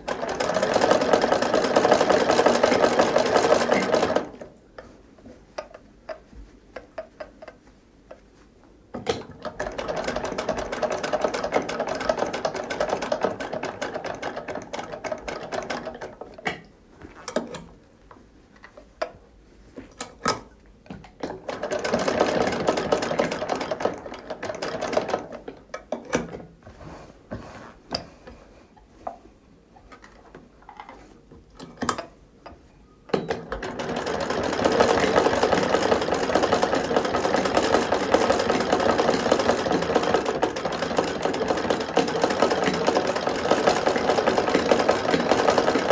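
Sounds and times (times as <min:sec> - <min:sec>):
sewing machine stitching: 0:00.1 - 0:04.5, 0:09.2 - 0:16.3, 0:21.2 - 0:26.4, 0:33.1 - 0:45.9
sewing machine clicks and ticks: 0:33.2 - 0:45.9.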